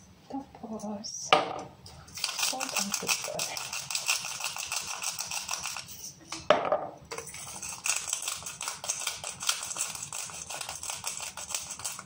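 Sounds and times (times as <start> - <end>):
salt and pepper grinders crunching: 2.1 - 6.0, 7.2 - 12.0.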